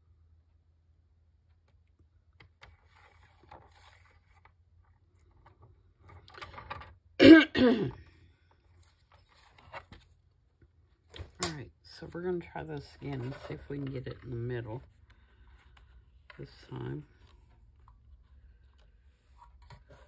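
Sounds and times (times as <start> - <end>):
woman clearing her throat: 7.2 - 8.0.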